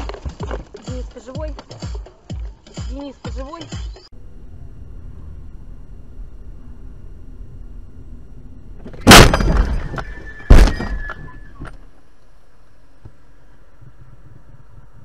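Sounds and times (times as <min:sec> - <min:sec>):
low steady hum: 0:04.0 - 0:15.0
high ringing tone: 0:04.1 - 0:12.5
rattling debris: 0:08.8 - 0:11.4
car crash impact: 0:08.8 - 0:11.7.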